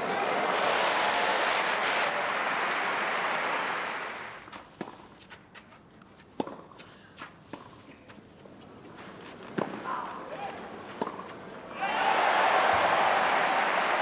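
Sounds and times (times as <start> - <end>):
crowd applause: 0.0 - 4.4, 11.8 - 14.0
ball bounces and footsteps: 4.4 - 11.6
racquet striking tennis ball: 11.0 - 11.3.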